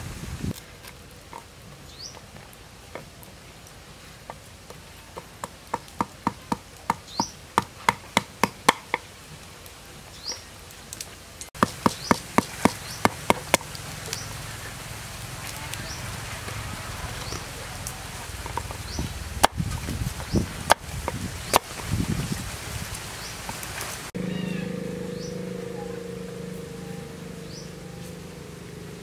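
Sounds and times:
cleaver chopping on wooden board: 5.2s - 9.0s, 11.6s - 13.6s, 18.4s - 19.7s.

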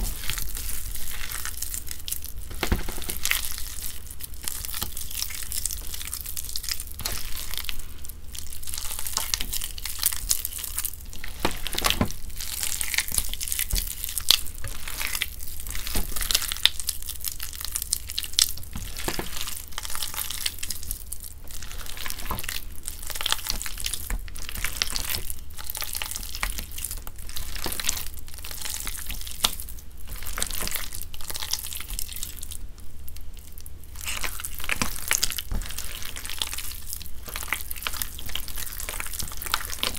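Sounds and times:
wet paste squishing: 0.0s - 39.9s
small crackling clicks and pops: 22.0s - 39.9s.

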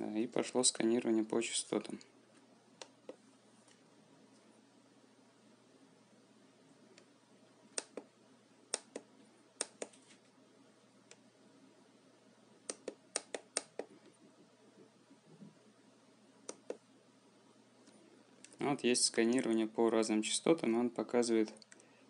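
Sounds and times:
push-buttons clicking: 12.7s - 13.9s.

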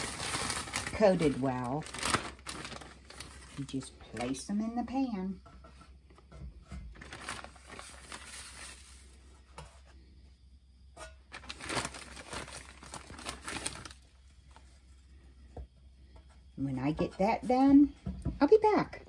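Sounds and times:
plastic bag crinkling: 0.0s - 4.4s, 6.9s - 9.2s, 11.3s - 14.3s.

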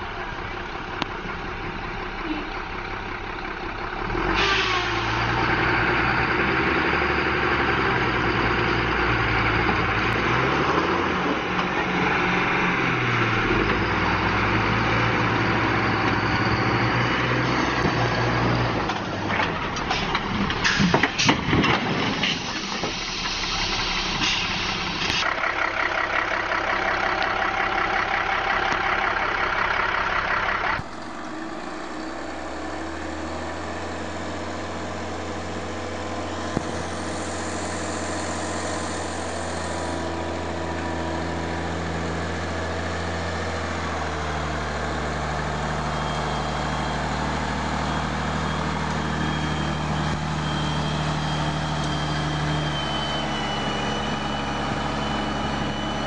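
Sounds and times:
truck engine running hard: 0.0s - 56.0s
truck crashing over: 17.8s - 23.8s.

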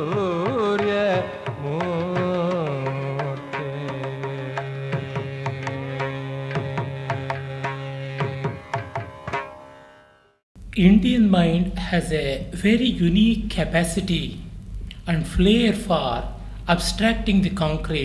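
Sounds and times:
person singing: 0.0s - 8.8s
tabla strokes: 0.0s - 10.2s.

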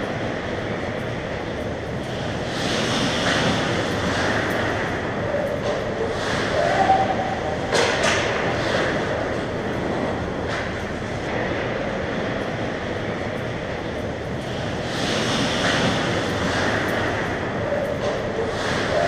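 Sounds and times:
sharp clacks: 7.7s - 9.8s, 14.3s - 19.0s.

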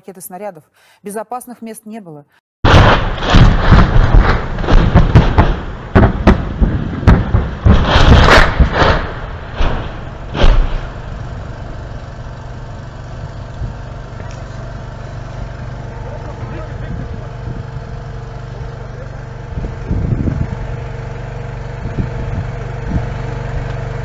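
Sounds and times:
shells exploding: 2.6s - 11.8s.

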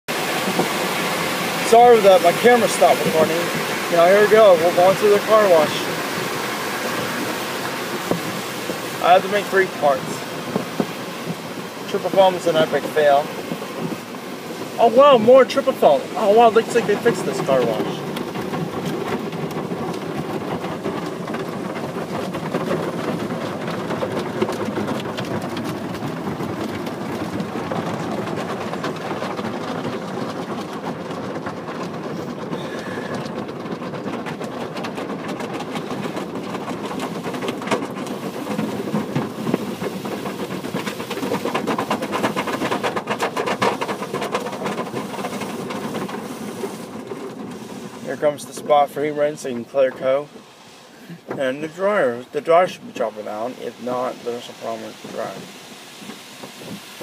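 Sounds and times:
car wash water and machinery: 0.1s - 57.0s
quick knocks and rattles: 16.6s - 48.0s.

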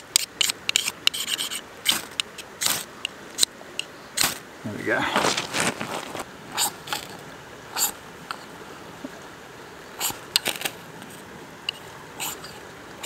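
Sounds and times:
knife rasping on ferro rod: 0.2s - 2.8s, 11.7s - 12.6s.

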